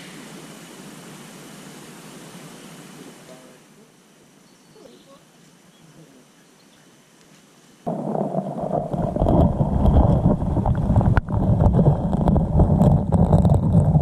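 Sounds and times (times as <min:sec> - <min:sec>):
clicks and knocks of silt: 0:07.9 - 0:14.0
muffled underwater water rumble: 0:07.9 - 0:14.0.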